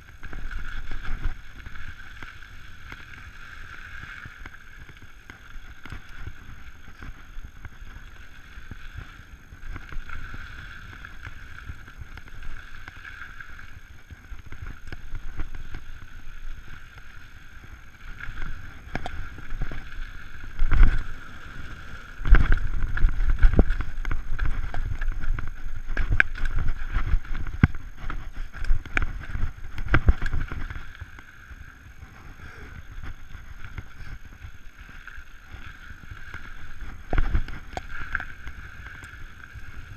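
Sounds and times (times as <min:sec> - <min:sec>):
bike tyres rolling on dirt: 0:00.0 - 0:39.9
wind over microphone: 0:00.0 - 0:39.9
bike rattling and thumping: 0:17.9 - 0:31.2.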